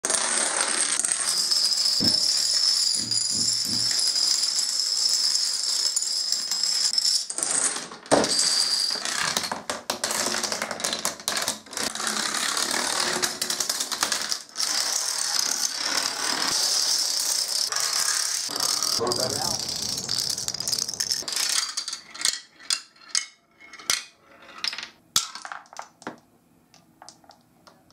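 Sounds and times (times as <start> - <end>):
dominoes toppling clatter: 0.1 - 26.2.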